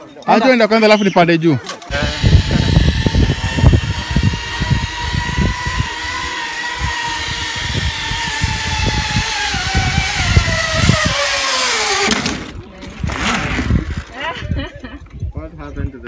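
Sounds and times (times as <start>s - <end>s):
zipline pulley whining on cable: 1.9s - 12.5s.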